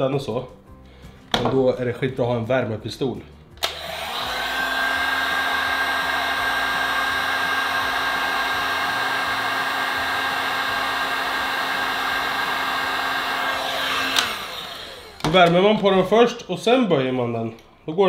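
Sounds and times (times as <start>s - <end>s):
heat gun running: 3.6s - 15.4s.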